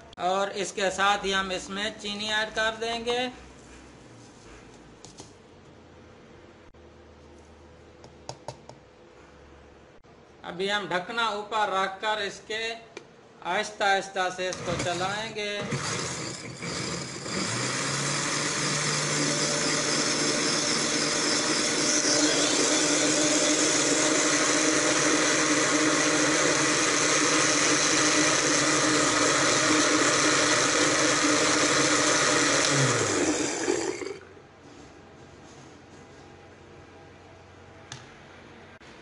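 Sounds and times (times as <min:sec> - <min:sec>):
blender motor running: 0:14.5 - 0:34.3.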